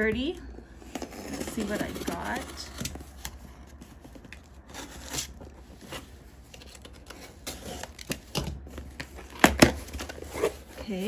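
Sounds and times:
cardboard scraping and rustling: 0.0 - 11.0.

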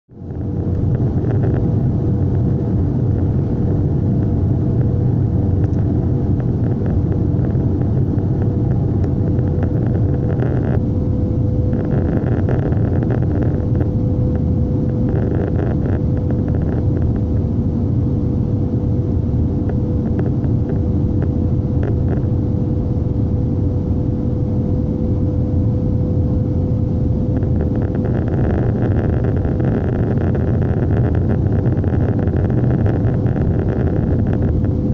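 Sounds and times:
constant hum tone: 0.1 - 34.9
jet engines and airflow rumble: 0.1 - 34.9.

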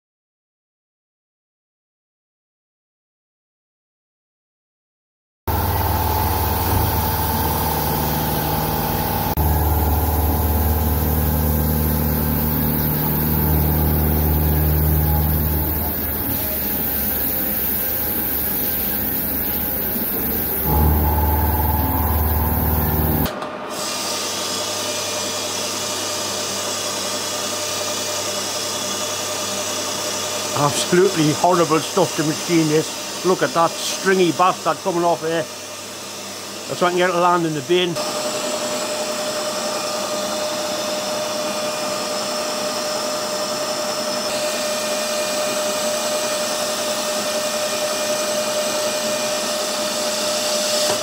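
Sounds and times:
metal lathe turning: 5.5 - 23.3
milling machine cutting metal: 5.5 - 24.1, 27.0 - 51.0.

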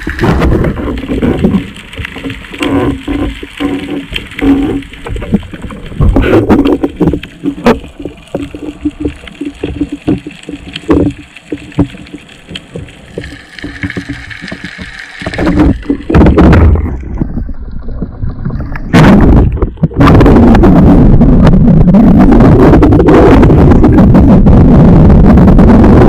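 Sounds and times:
water rushing against housing: 0.0 - 20.7
underwater clicks and knocks: 0.0 - 24.5
muffled water movement: 0.0 - 26.0.

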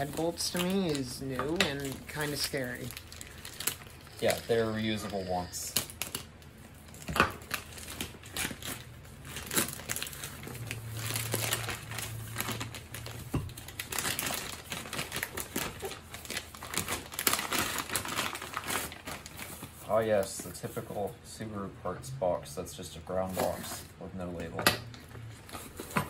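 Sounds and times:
plastic bag crinkling: 0.0 - 20.8.

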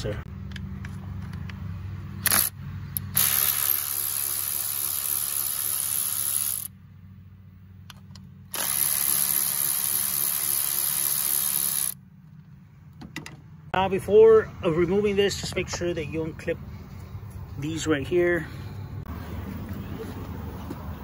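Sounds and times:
power tool running: 3.1 - 6.7, 8.5 - 12.0.

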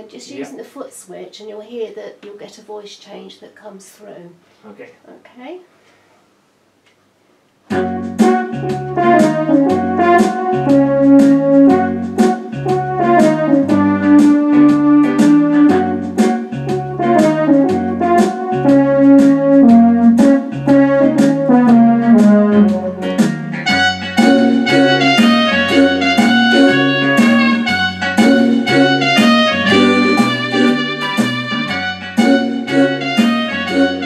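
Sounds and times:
keyboard playing blues: 7.7 - 34.0.

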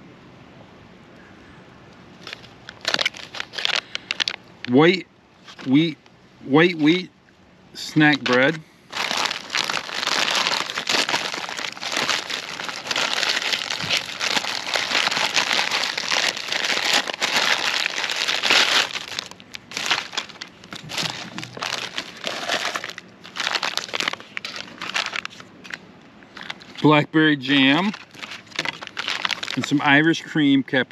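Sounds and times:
plastic packaging crinkling: 2.2 - 4.5, 5.4 - 5.8, 8.1 - 30.1.

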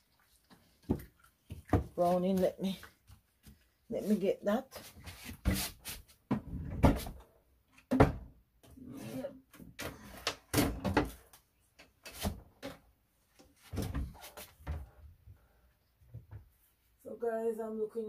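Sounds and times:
cupboard doors opening and closing: 5.2 - 11.3, 13.6 - 15.0
knocks and clunks of objects: 5.3 - 8.8, 9.5 - 12.9, 13.6 - 15.0.

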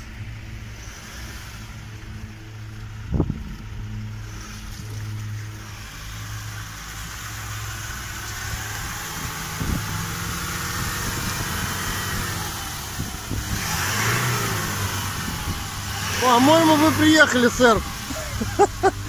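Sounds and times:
truck engine running under load: 0.0 - 19.0
water sloshing and splashing: 0.2 - 11.7.

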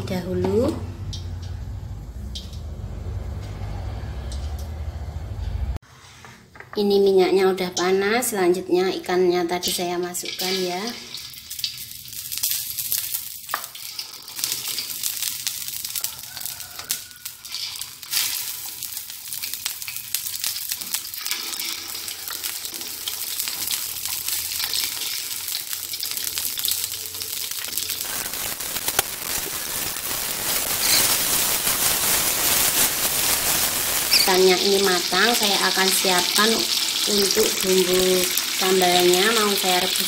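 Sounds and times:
fish sizzling in hot oil: 9.6 - 40.0.

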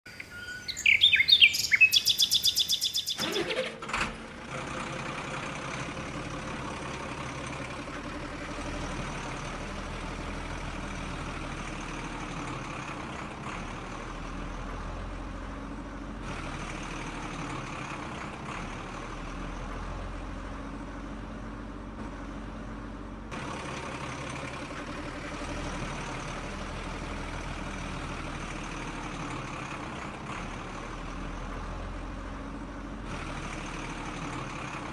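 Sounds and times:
fast-pulsing chirping: 0.1 - 3.5
engine-like rumble with hiss: 0.1 - 34.9.

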